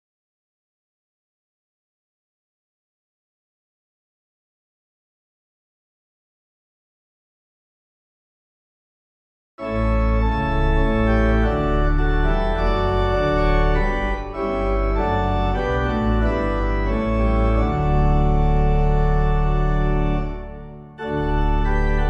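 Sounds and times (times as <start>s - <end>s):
organ playing held chords: 9.6s - 22.0s.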